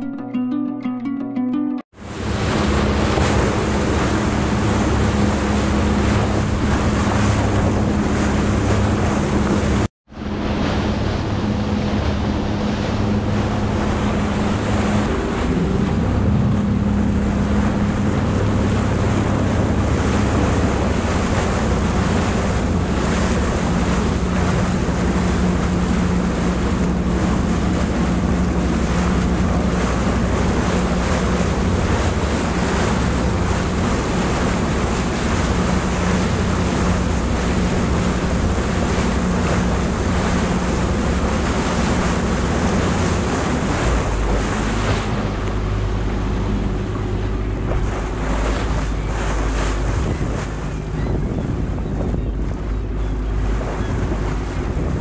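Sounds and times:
boat engine hum: 0.0 - 55.0
water rushing along hull: 0.0 - 55.0
wind buffeting microphone: 2.0 - 55.0.

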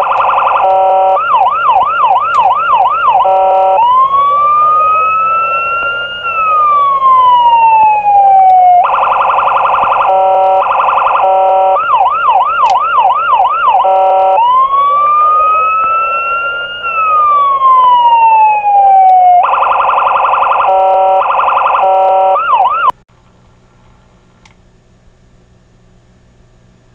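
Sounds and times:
police siren wail and yelp: 0.0 - 23.0
buzzing horn tone: 2.3 - 6.9, 10.0 - 12.0, 13.8 - 17.4.

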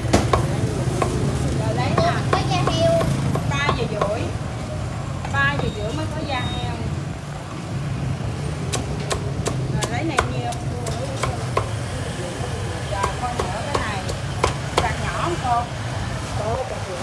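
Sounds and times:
cleaver chopping on wooden block: 8.7 - 11.8.

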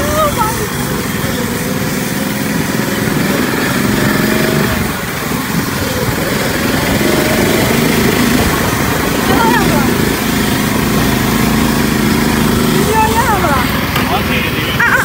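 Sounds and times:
small buggy engine running: 0.0 - 15.0.

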